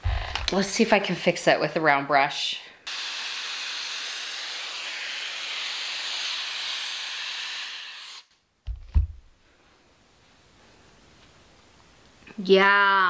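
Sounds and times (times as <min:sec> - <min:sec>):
low thumps: 0:00.0 - 0:00.6, 0:08.6 - 0:09.4
hair styler airflow hiss: 0:02.8 - 0:08.3.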